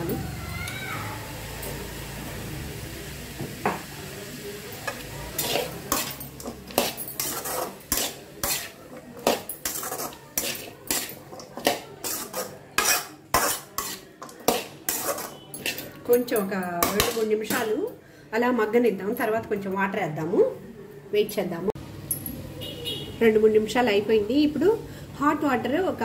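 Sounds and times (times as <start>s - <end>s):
metal spatula scraping a pan: 4.8s - 17.6s.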